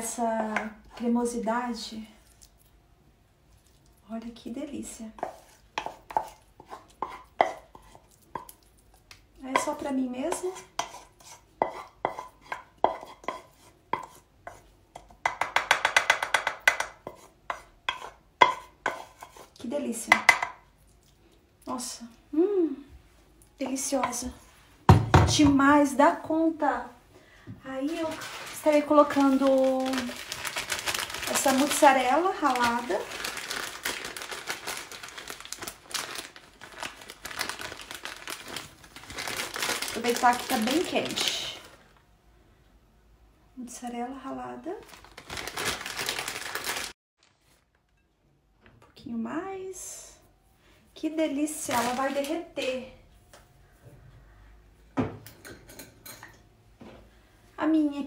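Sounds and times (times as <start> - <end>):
wooden spoon scraping frying pan: 5.2 - 8.5, 9.6 - 15.4, 16.8 - 19.6
plastic bag crinkling: 27.8 - 42.0, 44.8 - 47.9, 51.6 - 52.6.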